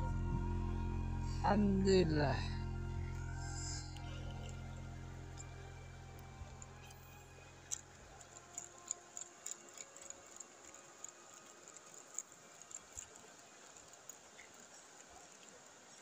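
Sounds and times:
background music: 0.0 - 13.1
faint clicking and ticking: 3.1 - 16.0.

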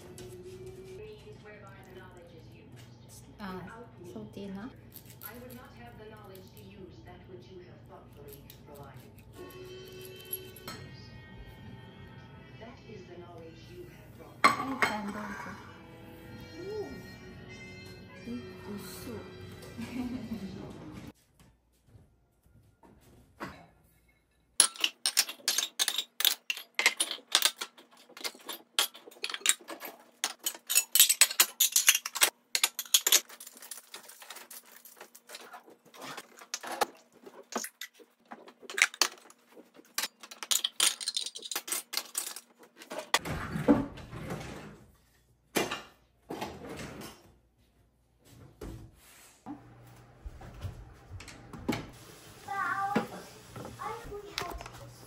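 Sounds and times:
dishes and cutlery clinking: 14.4 - 15.4, 23.4 - 44.0
cutlery basket jangling: 24.6 - 35.2, 39.8 - 43.2.

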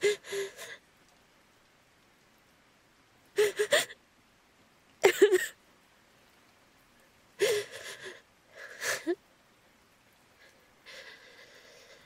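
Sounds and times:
woman sobbing: 0.0 - 0.8, 3.4 - 4.0, 5.0 - 5.6, 7.4 - 9.2, 10.9 - 12.0.

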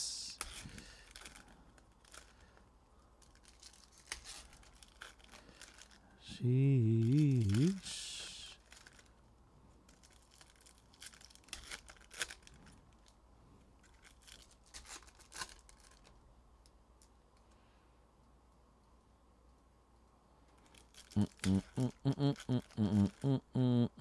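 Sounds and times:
wrappers crinkling and tearing: 0.4 - 2.5, 3.2 - 6.2, 7.0 - 7.9, 8.5 - 9.2, 9.8 - 13.2, 13.8 - 16.2, 20.6 - 21.6.

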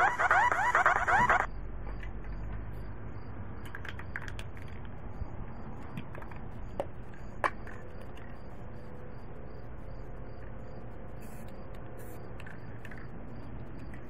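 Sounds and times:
handling crackles and clicks: 3.6 - 14.0.

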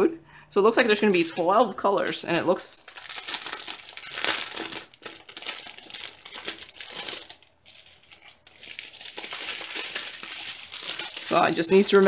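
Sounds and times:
plastic bags crinkling: 0.8 - 12.0.

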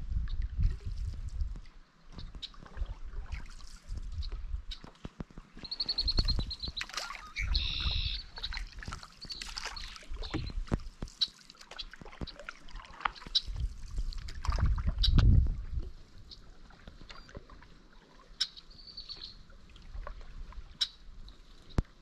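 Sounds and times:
wind buffeting microphone: 0.0 - 9.0, 13.4 - 16.2
canoe paddles dipping in water: 0.1 - 22.0
paddle knocks and splashes: 0.5 - 7.6, 8.2 - 16.0
bird calling: 5.6 - 10.6, 18.4 - 19.4.

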